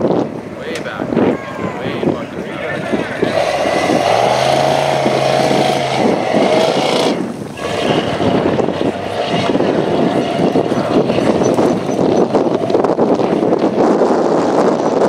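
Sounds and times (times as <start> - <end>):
buggy engine revving: 2.8 - 15.0.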